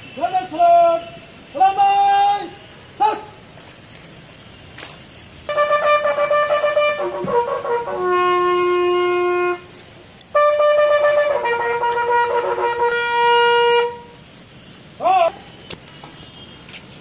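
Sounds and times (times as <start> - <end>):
bugle call: 4.8 - 14.2.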